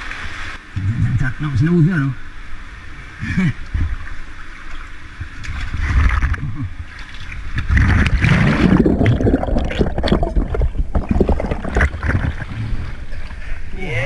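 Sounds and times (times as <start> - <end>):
muffled underwater churning and bubbling: 2.2 - 13.7
water splashing and gurgling: 3.3 - 13.6.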